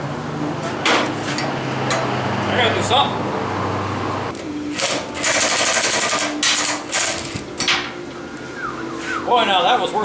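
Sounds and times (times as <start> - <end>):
impact wrench hammering: 4.4 - 7.8.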